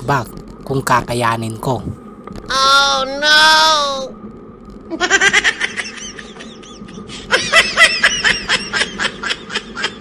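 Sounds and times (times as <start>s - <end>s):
person laughing: 4.9s - 10.0s.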